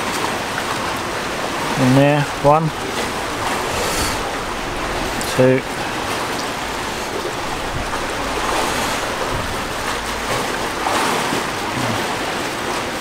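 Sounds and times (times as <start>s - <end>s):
sea rushing: 0.0s - 13.0s
wind: 0.0s - 13.0s.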